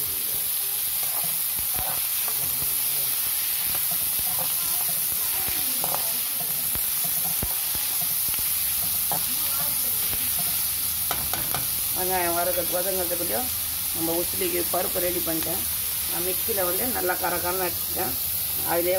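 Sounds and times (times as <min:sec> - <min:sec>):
onions sizzling in oil: 0:00.0 - 0:18.9
spoon scraping a pan: 0:00.9 - 0:12.9.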